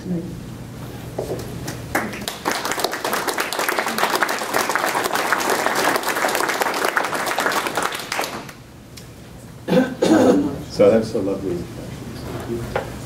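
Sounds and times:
audience applauding: 1.9 - 8.6.

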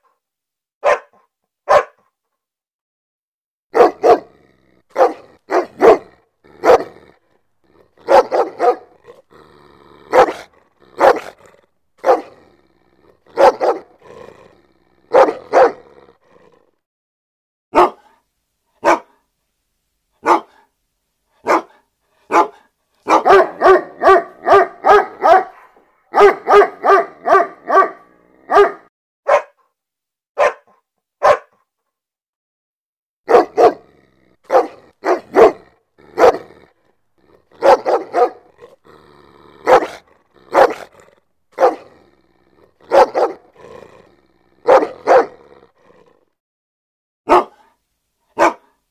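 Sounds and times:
dog barking: 0.8 - 2.1, 3.7 - 9.2, 10.0 - 12.4, 13.3 - 14.1, 15.0 - 16.0, 17.7 - 18.2, 18.8 - 19.2, 20.2 - 20.7, 21.4 - 29.7, 30.4 - 31.6, 33.3 - 36.7, 37.3 - 38.8, 39.6 - 42.0, 42.6 - 43.8, 44.6 - 45.5, 47.3 - 48.8.

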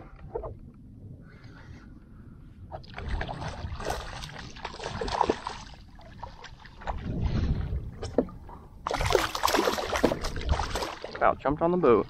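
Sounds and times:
fish thrashing and splashing: 2.8 - 7.2, 8.8 - 11.2.

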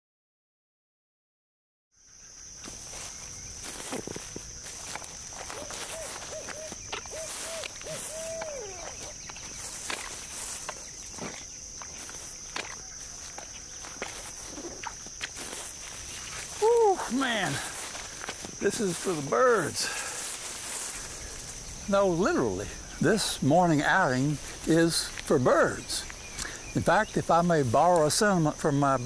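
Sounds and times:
high insect drone: 2.0 - 29.0
rising and falling animal calls: 5.3 - 9.8, 14.3 - 15.1.

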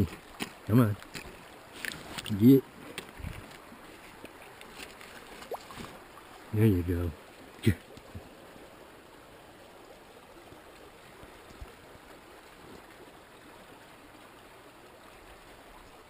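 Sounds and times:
shallow river water rushing: 0.0 - 16.0.

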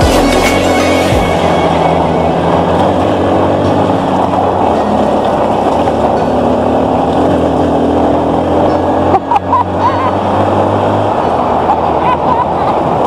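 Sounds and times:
tyres on rocky gravel: 0.0 - 7.5
dirt bike engine running: 0.0 - 12.2.

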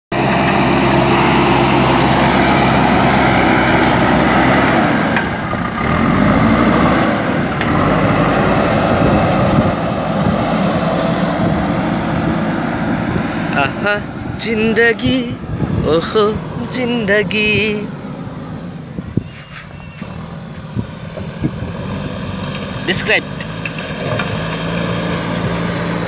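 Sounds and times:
diesel engine running under load: 0.1 - 26.0
loader bucket pushing gravel: 0.2 - 13.8, 19.4 - 26.0.

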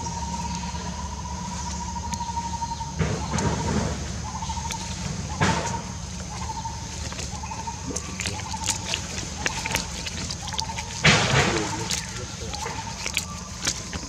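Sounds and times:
insect drone: 0.0 - 14.0
dry leaves rustling: 4.0 - 14.0.

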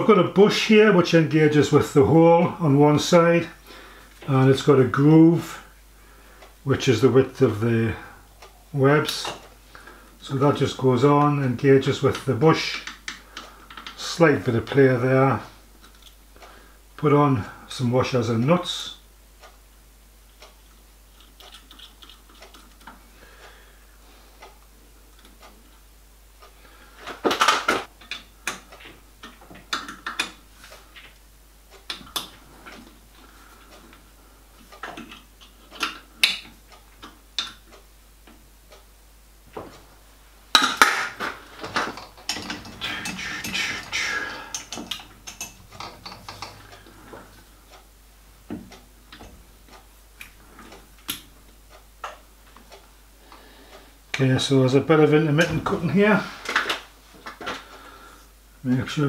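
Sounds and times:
spanner tightening nuts: 42.0 - 46.9.

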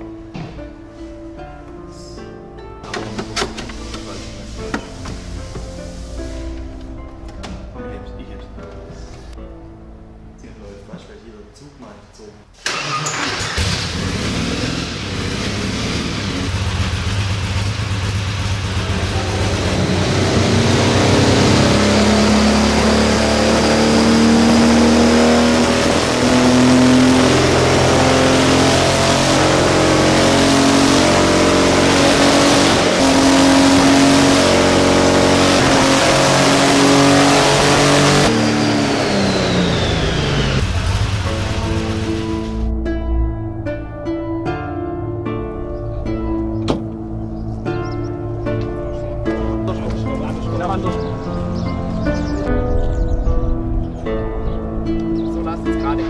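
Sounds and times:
racing car engine running hard: 13.1 - 42.7.

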